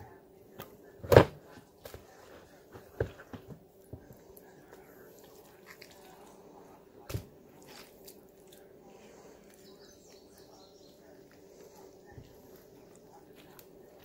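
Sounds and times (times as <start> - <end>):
faint steady hum: 0.0 - 14.0
wet handling of meat filling: 4.0 - 11.5.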